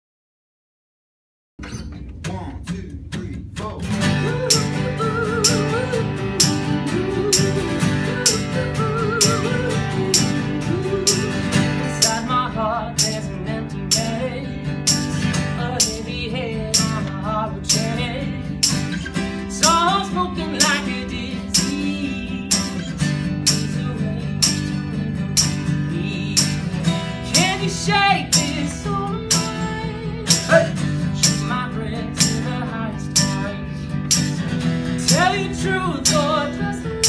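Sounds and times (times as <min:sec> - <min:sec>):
acoustic guitars strumming: 0:01.6 - 0:37.0
wavering wordless melody: 0:04.1 - 0:19.0
shaker beat: 0:04.3 - 0:12.4, 0:13.9 - 0:31.6, 0:32.2 - 0:33.5, 0:34.1 - 0:37.0.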